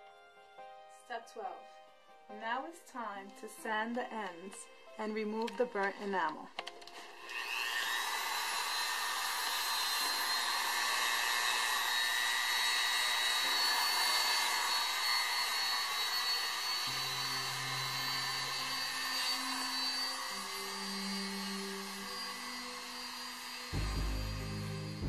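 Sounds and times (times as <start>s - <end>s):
rotary tool whining: 5.3s - 25.0s.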